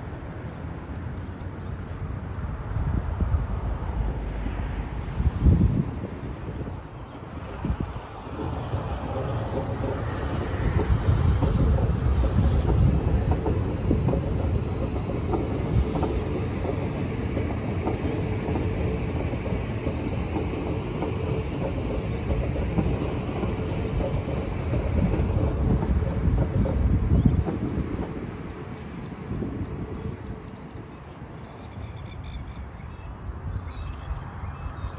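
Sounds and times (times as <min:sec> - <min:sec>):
train rumble: 0:00.0 - 0:31.8
wheels clicking over track: 0:07.4 - 0:28.5.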